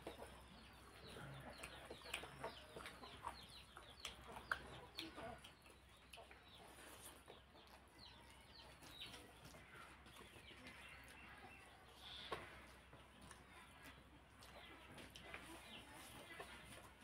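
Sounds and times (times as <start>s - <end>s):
chewing: 0.0s - 17.0s
fingers squishing rice and gravy: 0.0s - 17.0s
small mouth smacks and clicks: 1.5s - 6.5s.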